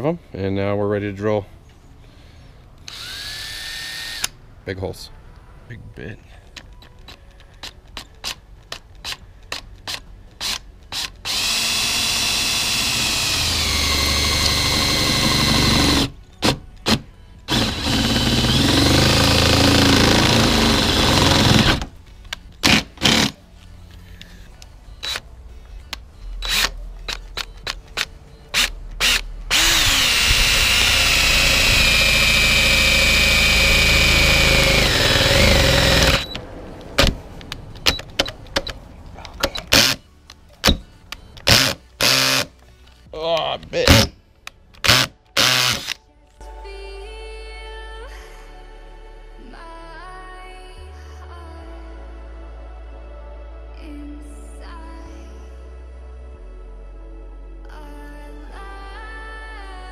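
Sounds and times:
cordless drill boring through metal: 0:02.9 - 0:04.3, 0:10.4 - 0:16.2, 0:16.8 - 0:21.9, 0:22.6 - 0:23.4, 0:28.6 - 0:36.4, 0:41.4 - 0:42.5, 0:44.8 - 0:46.0.

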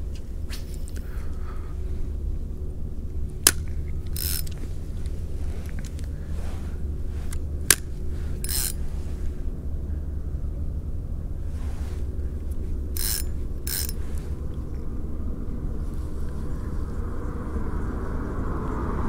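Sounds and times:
steady low rumble: 0:00.0 - 0:19.0
fishing reel clicks: 0:03.4 - 0:06.1, 0:07.2 - 0:09.0, 0:12.9 - 0:14.3.

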